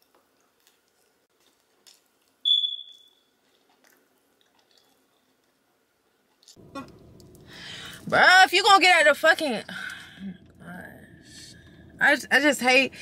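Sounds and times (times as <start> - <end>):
high-pitched beep: 2.5 - 3.1.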